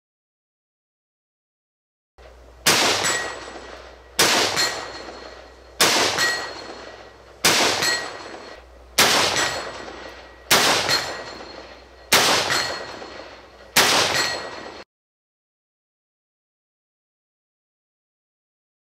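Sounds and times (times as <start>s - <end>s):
rifle shots with echo: 2.6s - 14.8s.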